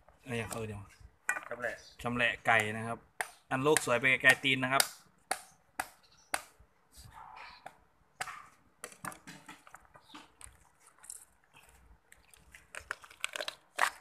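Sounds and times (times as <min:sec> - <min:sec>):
chicken carcass cracking and knocking: 0:08.2 - 0:10.6.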